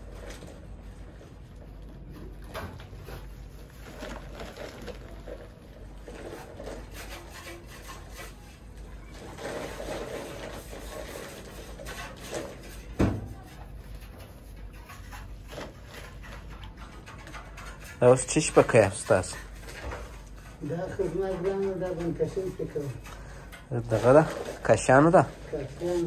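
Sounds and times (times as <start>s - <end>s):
plastic sack rustling: 0.0s - 7.0s, 9.0s - 12.6s.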